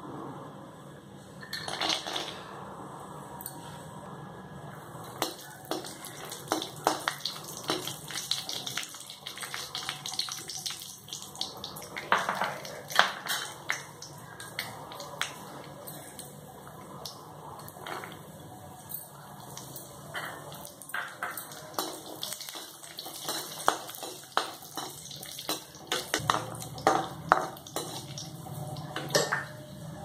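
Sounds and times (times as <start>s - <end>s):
nuts sizzling in hot fat: 5.2s - 15.4s, 20.6s - 28.9s.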